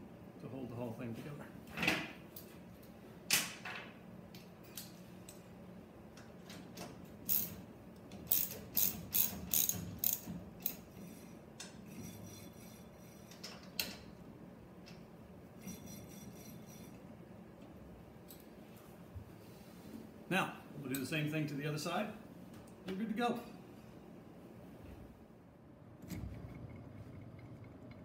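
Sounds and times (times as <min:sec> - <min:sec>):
ratchet clicking: 0:07.3 - 0:07.6, 0:08.2 - 0:10.8.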